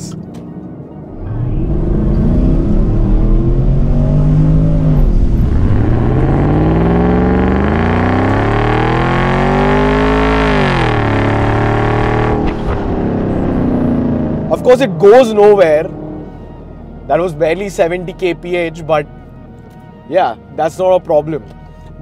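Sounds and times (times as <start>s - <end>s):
car engine revving hard: 1.2s - 14.5s.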